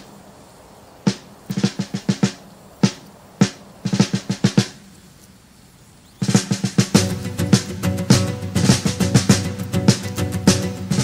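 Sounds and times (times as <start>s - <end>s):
snare drum strokes: 1.1s - 4.9s, 6.2s - 11.0s.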